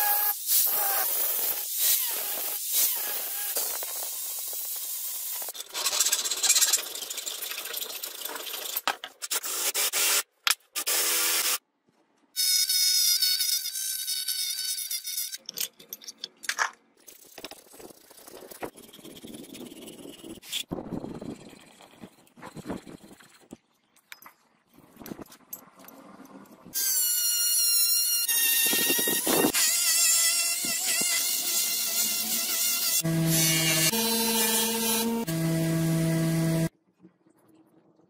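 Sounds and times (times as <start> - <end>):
angle grinder grinding metal: 26.8 - 36.7
electric drill whining: 26.8 - 36.7.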